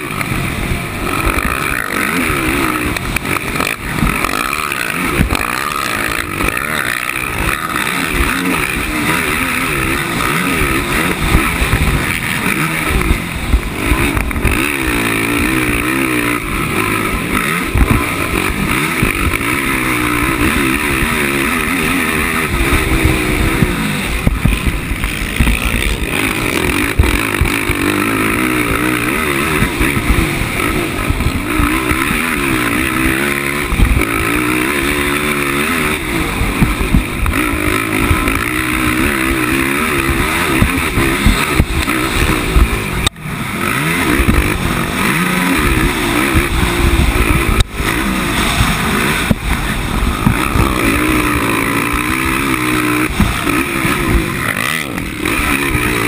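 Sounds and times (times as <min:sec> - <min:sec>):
quad engine revving: 0:00.0 - 0:56.0.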